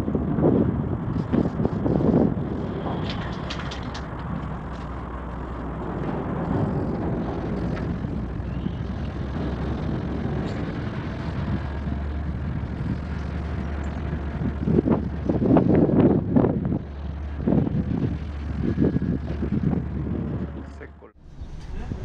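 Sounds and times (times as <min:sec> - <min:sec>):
road traffic rumble overhead: 0:00.0 - 0:22.0.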